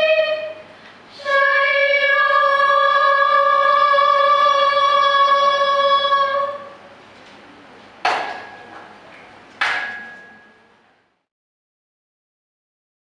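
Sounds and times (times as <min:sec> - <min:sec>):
women's choir singing: 0:00.0 - 0:06.8
sharp ringing strikes: 0:09.7 - 0:10.7.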